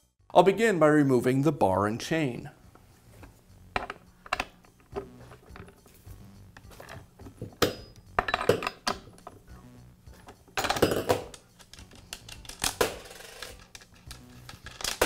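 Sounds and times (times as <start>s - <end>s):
wrench and metal parts clinking: 3.8s - 4.8s, 6.7s - 9.4s, 10.3s - 15.0s.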